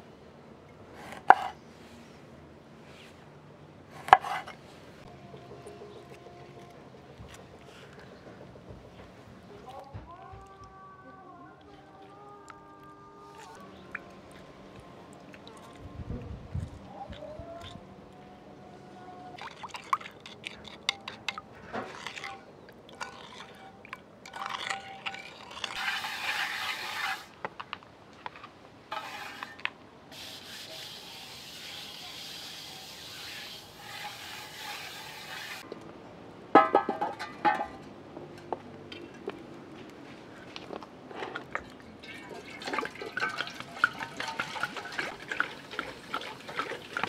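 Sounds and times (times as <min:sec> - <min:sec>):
spoon scraping in a bowl: 0:04.0 - 0:06.7, 0:19.4 - 0:27.4, 0:28.9 - 0:29.7, 0:33.0 - 0:35.6, 0:41.6 - 0:47.0
water hissing from a hose: 0:24.3 - 0:27.4, 0:28.9 - 0:35.6
metallic clatter: 0:36.6 - 0:39.2.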